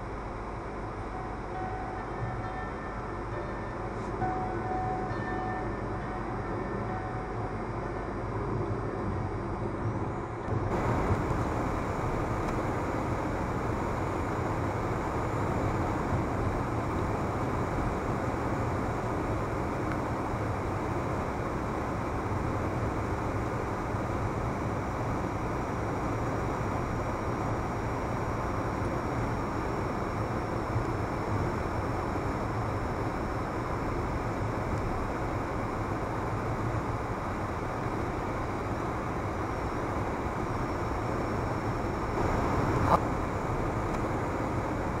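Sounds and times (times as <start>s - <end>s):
car road and engine rumble: 0.0s - 45.0s.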